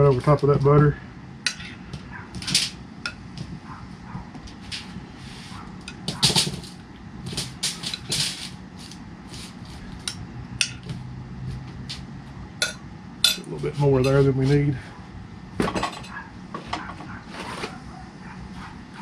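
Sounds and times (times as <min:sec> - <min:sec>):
utensil clinking against a bowl: 0:01.5 - 0:01.8, 0:12.6 - 0:14.2.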